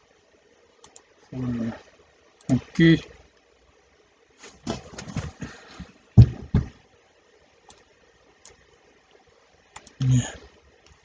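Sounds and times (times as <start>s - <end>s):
mouse thumps: 6.2s - 6.8s
mouse clicks: 9.8s - 10.0s.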